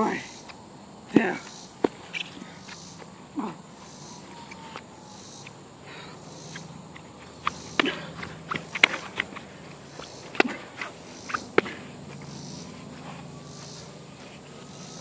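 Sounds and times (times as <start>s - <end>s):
slaps and thuds of scuffling: 1.1s - 3.5s, 6.9s - 13.3s.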